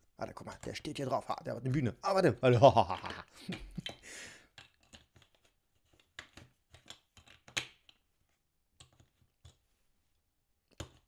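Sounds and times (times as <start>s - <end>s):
plastic bricks clicking together: 2.8s - 8.1s.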